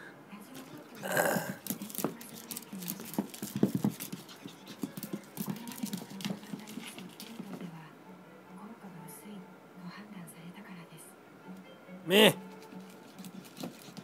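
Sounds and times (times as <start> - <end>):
dog panting: 1.7 - 7.7, 12.7 - 14.0.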